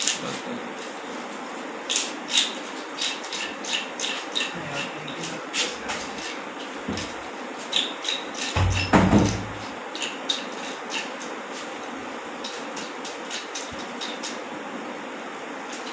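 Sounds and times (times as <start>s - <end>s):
knife scraping fish scales: 0.8s - 11.8s.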